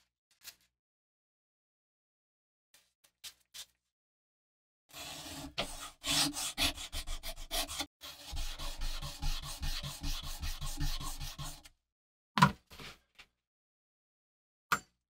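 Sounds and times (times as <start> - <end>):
sandpaper scratching on steel: 4.9 - 11.7.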